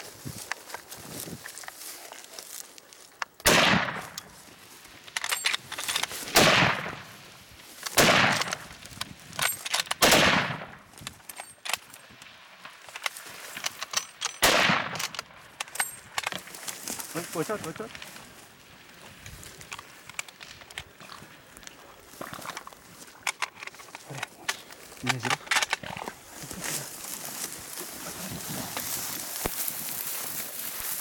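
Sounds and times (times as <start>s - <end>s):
rifle shots with echo: 3.4s - 4.2s, 6.2s - 7.1s, 7.9s - 8.7s, 10.0s - 10.8s, 14.4s - 15.2s.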